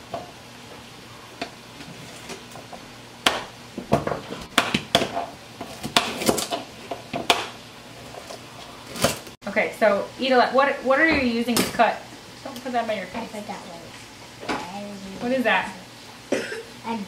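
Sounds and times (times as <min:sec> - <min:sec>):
knives chopping on cutting boards: 0:03.2 - 0:07.6.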